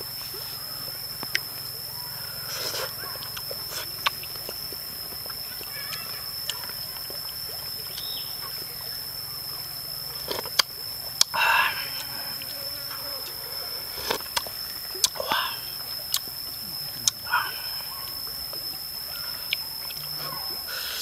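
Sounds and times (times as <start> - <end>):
person slurping soup: 2.5 - 3.0, 14.0 - 14.3.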